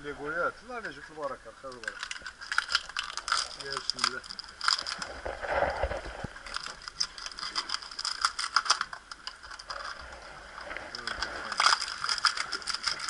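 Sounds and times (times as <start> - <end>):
knife cracking sea urchin shell: 1.7 - 5.1, 11.0 - 13.0.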